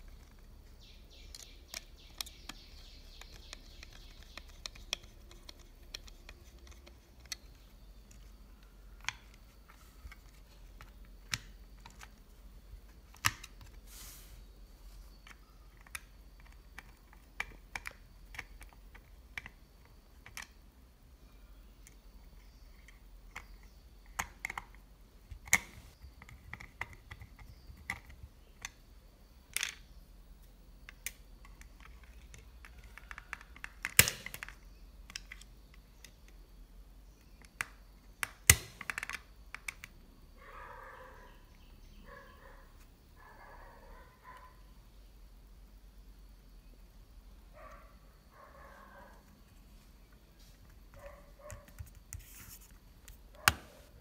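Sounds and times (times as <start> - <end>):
hard plastic clicks and taps: 1.3 - 8.3, 15.2 - 20.6, 22.8 - 28.8.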